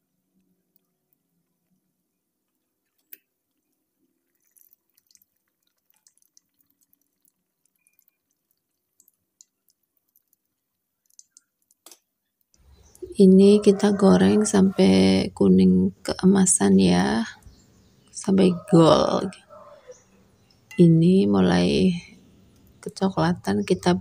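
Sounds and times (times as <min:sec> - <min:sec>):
dough frying in hot oil: 0:00.0 - 0:13.0.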